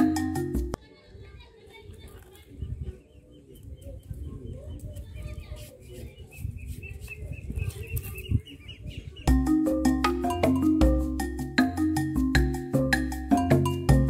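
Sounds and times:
small birds chirping: 0:01.3 - 0:09.8.

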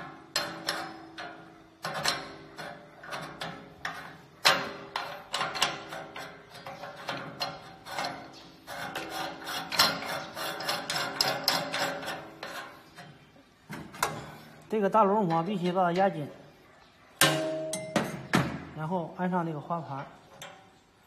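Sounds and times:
sharp metal knocks: 0:17.2 - 0:18.8.

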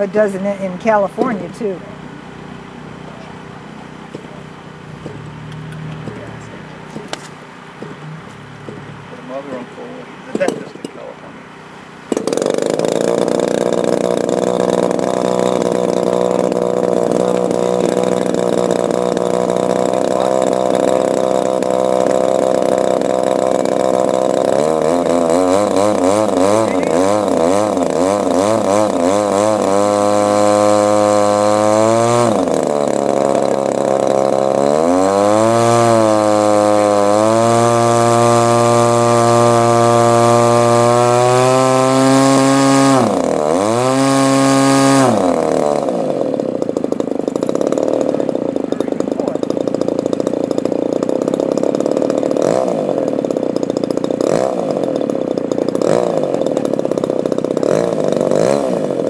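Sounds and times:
model airplane engine revving: 0:12.0 - 0:59.0.

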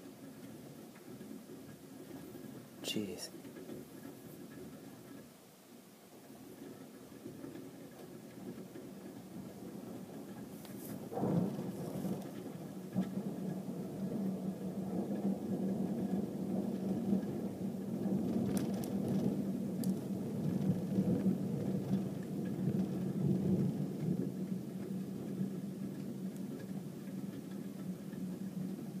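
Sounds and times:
rolling thunder: 0:08.3 - 0:29.0.

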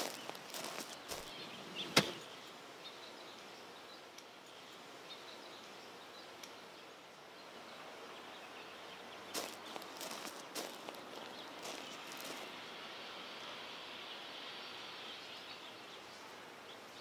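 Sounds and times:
footsteps: 0:00.0 - 0:01.3, 0:09.3 - 0:12.5
faint outdoor ambience: 0:00.0 - 0:17.0.

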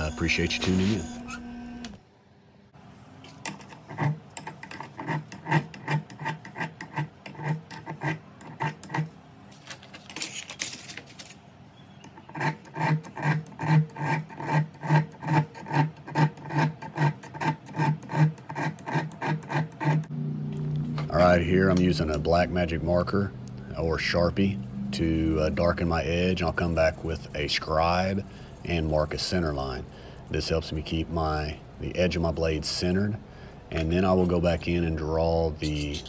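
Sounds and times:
file scraping steel: 0:00.0 - 0:01.5, 0:03.5 - 0:09.1, 0:12.0 - 0:20.1.

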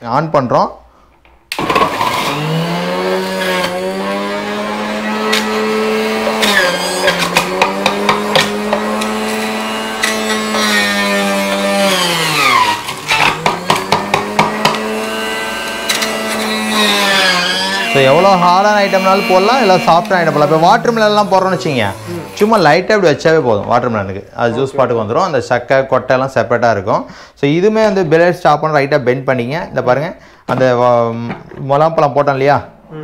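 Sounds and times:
juicer motor humming: 0:01.5 - 0:22.5.

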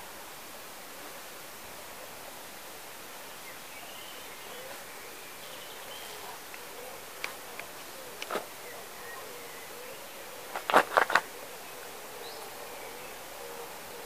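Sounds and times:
faint distant bird calls: 0:01.1 - 0:14.0
brief rustle: 0:07.2 - 0:08.5, 0:10.5 - 0:11.3.

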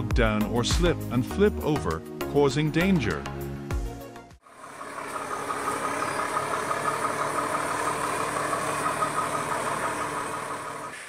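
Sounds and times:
truck diesel engine running: 0:04.4 - 0:11.0.

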